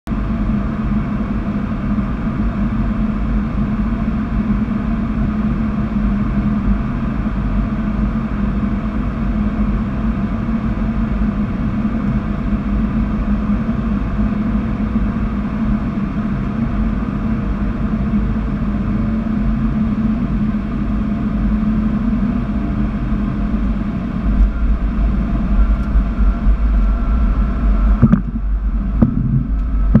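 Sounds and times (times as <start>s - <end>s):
jet airflow and engine noise: 0.1s - 30.0s
wheels rumbling on runway: 18.8s - 30.0s
low hum: 19.1s - 30.0s.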